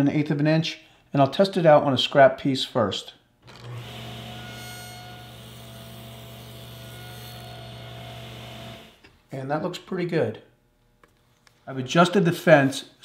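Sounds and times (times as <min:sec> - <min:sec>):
table saw humming: 0:03.4 - 0:09.1.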